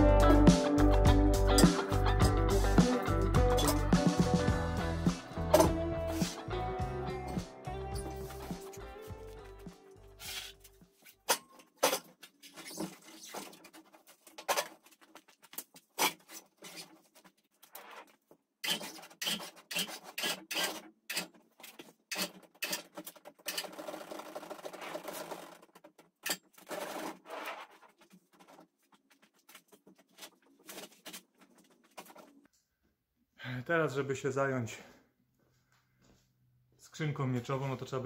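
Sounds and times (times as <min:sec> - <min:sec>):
tyres rubbing and scraping: 0:05.1 - 0:32.5.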